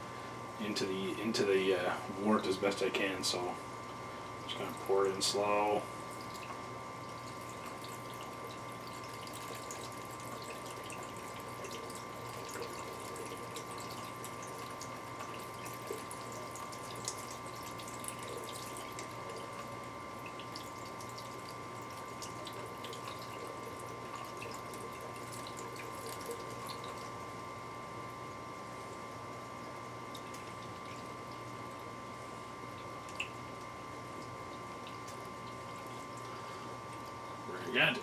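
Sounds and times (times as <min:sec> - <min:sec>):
steady hum: 0:00.0 - 0:38.0
liquid trickling into glass jug: 0:06.0 - 0:27.3.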